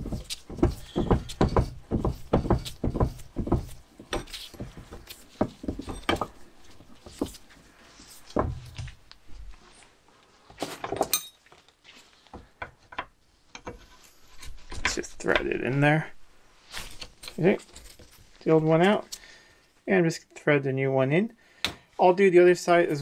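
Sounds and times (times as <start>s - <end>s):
metal clinks and knocks: 0.0s - 7.4s, 10.8s - 11.6s.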